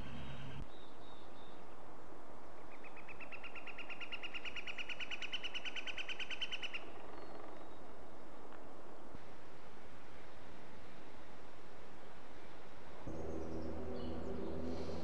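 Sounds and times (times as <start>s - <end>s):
steady hiss: 9.1s - 13.2s.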